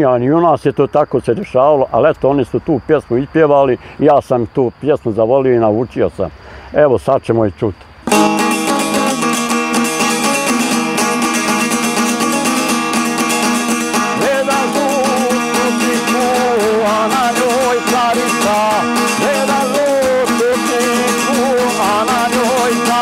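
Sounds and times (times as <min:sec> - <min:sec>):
long-necked lute strummed fast: 0:08.1 - 0:23.0
person singing with vibrato: 0:08.1 - 0:23.0.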